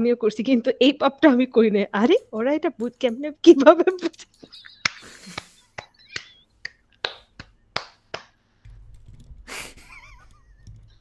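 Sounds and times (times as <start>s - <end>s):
hands clapping: 3.9s - 8.4s.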